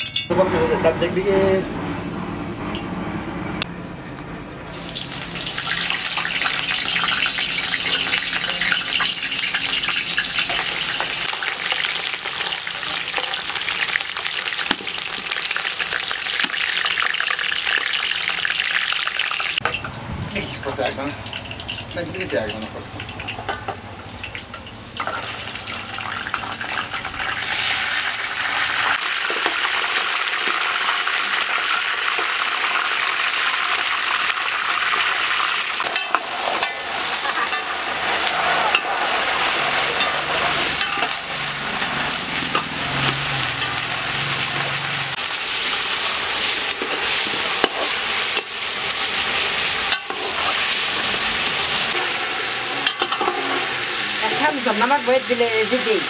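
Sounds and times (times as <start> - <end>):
metal ladle clinking against pot: 0.0 - 0.3
meat sizzling in hot oil: 4.7 - 56.0.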